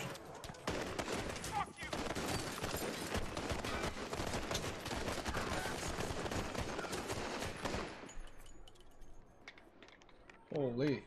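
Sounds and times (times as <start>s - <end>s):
rapid gunfire: 0.6s - 8.0s.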